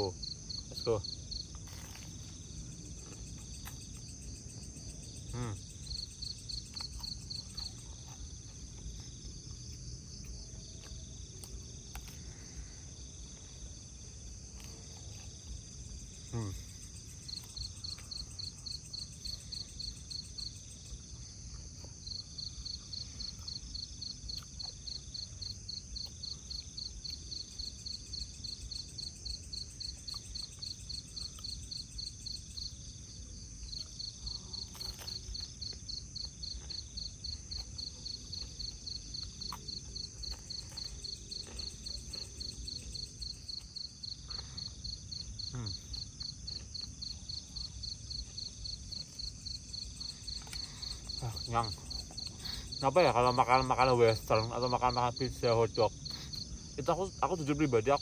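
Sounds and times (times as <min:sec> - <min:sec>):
crickets chirping: 0:00.0 - 0:58.0
faint chewing: 0:00.5 - 0:32.9, 0:33.6 - 0:52.8.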